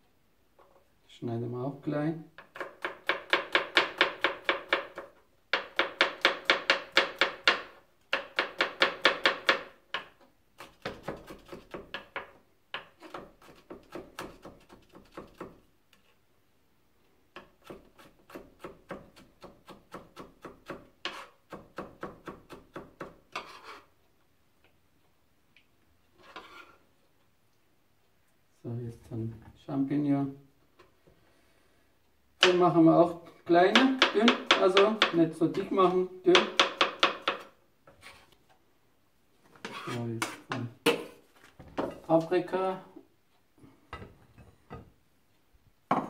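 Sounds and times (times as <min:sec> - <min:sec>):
knife chopping on plastic board: 0:02.4 - 0:15.6, 0:17.4 - 0:23.7, 0:33.7 - 0:35.7, 0:36.3 - 0:37.6.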